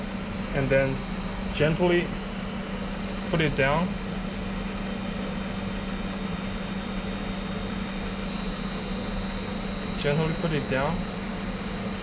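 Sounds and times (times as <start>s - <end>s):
faint high whine: 0.0s - 4.0s, 8.0s - 12.0s
machinery hum: 0.0s - 12.0s.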